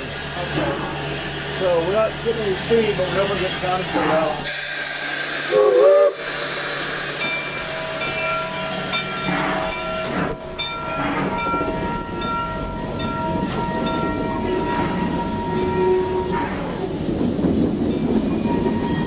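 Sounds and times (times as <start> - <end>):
steam hiss: 0.0 - 10.4.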